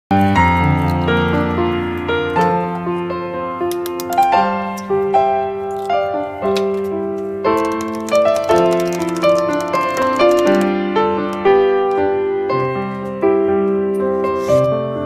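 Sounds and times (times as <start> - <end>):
piano music: 0.1 - 15.0.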